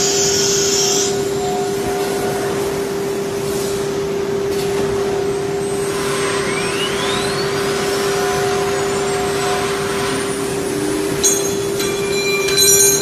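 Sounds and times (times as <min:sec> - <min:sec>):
spindle high whine: 0:00.0 - 0:13.0
rising whistle: 0:05.8 - 0:12.2.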